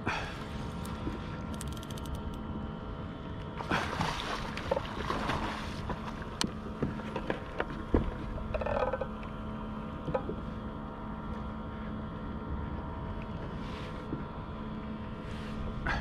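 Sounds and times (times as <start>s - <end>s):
rod and reel knocking on kayak: 6.4s - 9.2s, 10.0s - 10.4s.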